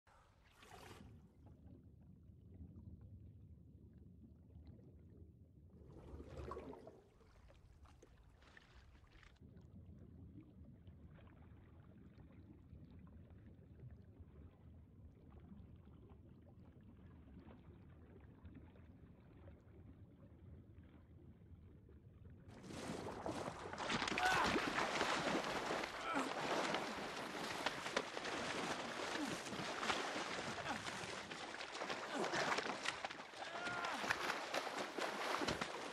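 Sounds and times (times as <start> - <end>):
low rumble of sea water: 0.1 - 35.9
water splash: 22.6 - 35.9.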